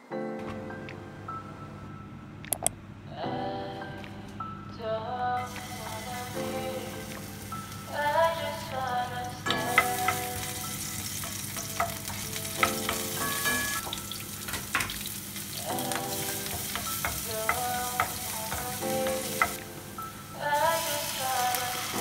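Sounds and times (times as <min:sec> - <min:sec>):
onion and garlic sizzling in oil: 0:05.4 - 0:22.0
wooden spoon knocking against pan: 0:09.5 - 0:10.4, 0:11.2 - 0:13.8, 0:15.8 - 0:19.6.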